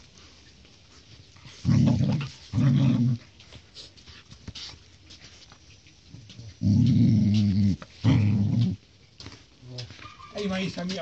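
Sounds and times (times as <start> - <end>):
puppies growling: 1.3 - 3.9, 6.1 - 8.9.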